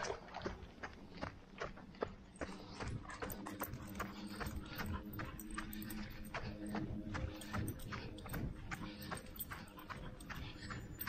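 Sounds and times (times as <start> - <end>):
footsteps on a trail: 0.0 - 11.0.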